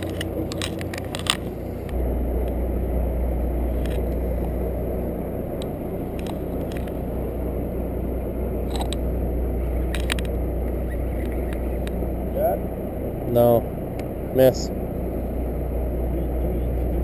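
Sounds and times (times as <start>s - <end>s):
boat engine idling: 0.0s - 17.0s
faint clicks: 9.8s - 12.0s.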